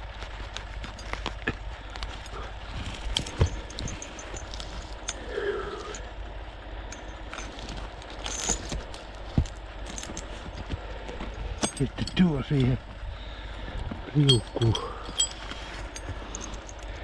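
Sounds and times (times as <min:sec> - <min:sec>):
metal chain links clinking: 0:02.2 - 0:06.1, 0:06.9 - 0:10.6, 0:11.4 - 0:12.8, 0:14.1 - 0:17.0.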